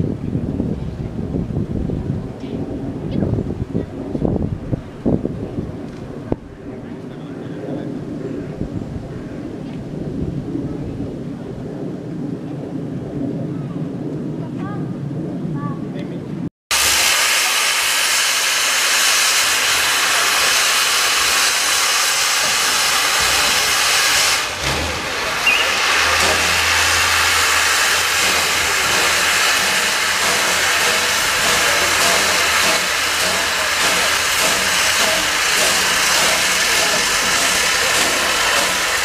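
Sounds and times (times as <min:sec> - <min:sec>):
steam locomotive venting steam: 0:16.7 - 0:39.0.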